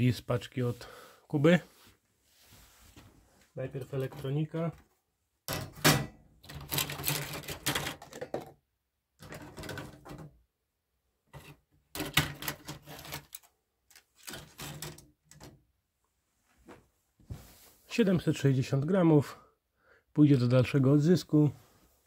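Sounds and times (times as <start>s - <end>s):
circuit boards clattering and scraping: 5.5s - 8.6s, 9.2s - 10.4s, 11.3s - 15.6s.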